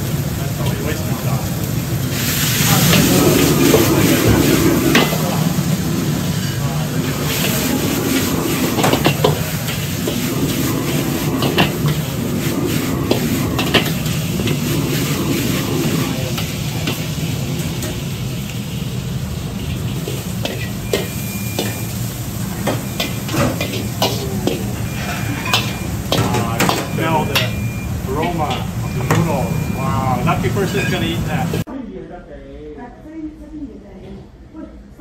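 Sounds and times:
gas burner rushing: 0.0s - 31.7s
noodles sizzling: 0.0s - 31.7s
ladle scraping a wok: 2.1s - 18.0s, 19.5s - 29.8s.

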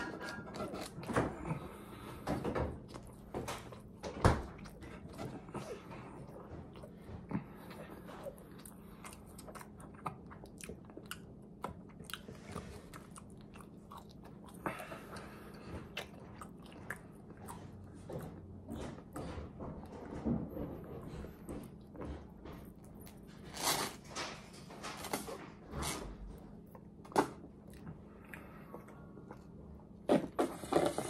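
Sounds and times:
faint low hum: 0.0s - 31.0s
person chewing crunchy food: 2.8s - 19.1s.

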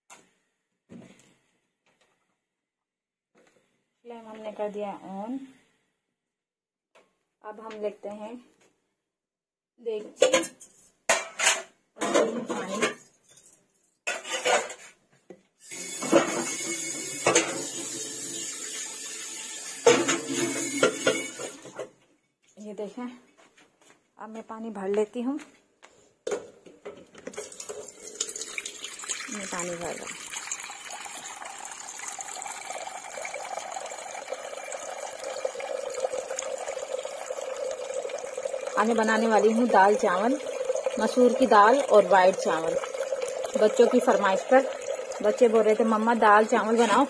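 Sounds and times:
tap water filling metal pot: 15.7s - 21.8s, 26.9s - 47.0s.

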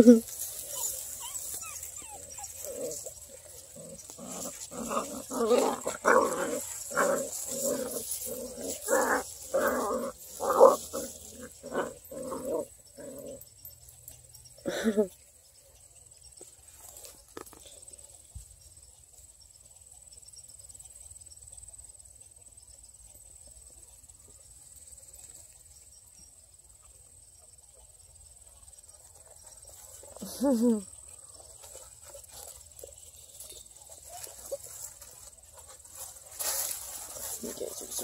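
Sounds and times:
dog barking and growling: 0.0s - 13.5s
faint insect chirring: 0.0s - 38.0s.

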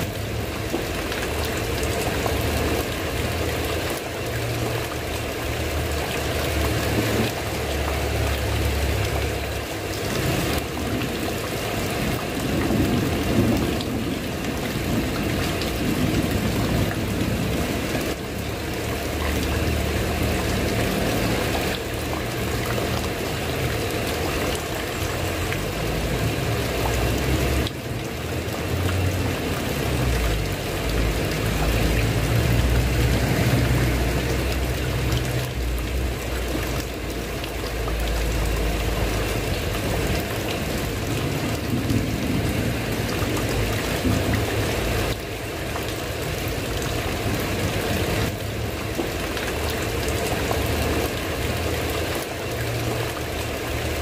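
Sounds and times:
heavy rain pouring: 0.0s - 54.0s.

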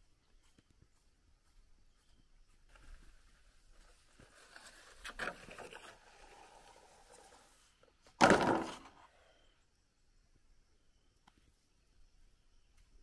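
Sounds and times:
soft rustling: 0.0s - 8.0s
bamboo poles clattering: 4.2s - 6.6s, 8.1s - 9.0s.

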